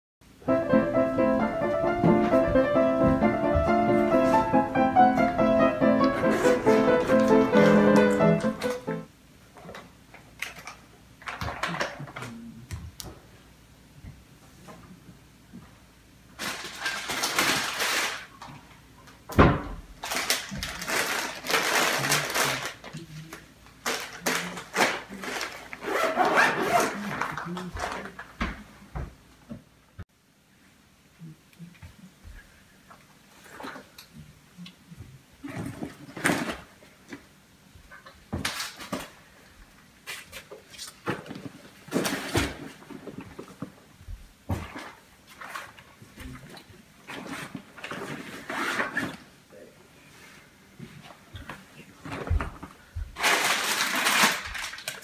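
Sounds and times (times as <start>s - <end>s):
foil and plastic wrappers crinkling: 16.4s - 18.5s, 20.0s - 28.4s, 53.2s - 55.0s.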